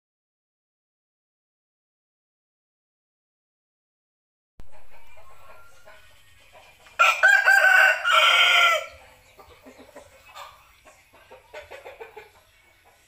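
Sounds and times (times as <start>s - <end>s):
rooster crowing: 7.0s - 9.0s.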